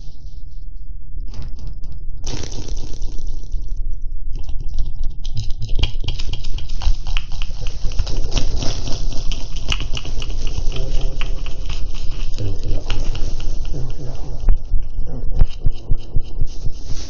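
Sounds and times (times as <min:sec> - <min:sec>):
cat litter granules crunching: 0:02.3 - 0:03.4, 0:06.4 - 0:14.1
low rubbing rumble: 0:07.4 - 0:17.0.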